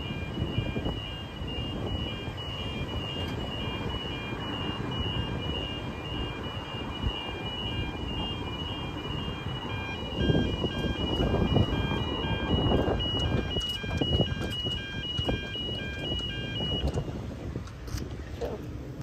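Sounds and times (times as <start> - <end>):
crossing warning bell ringing: 0.0 - 16.9
road traffic: 0.0 - 19.0.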